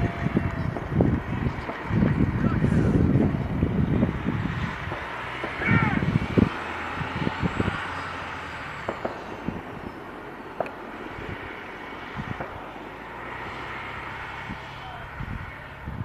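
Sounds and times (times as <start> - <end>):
truck engine running low: 0.0 - 16.0.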